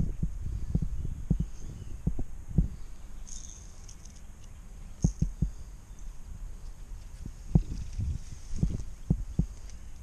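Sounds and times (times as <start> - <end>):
footsteps through dry grass: 6.6 - 10.0.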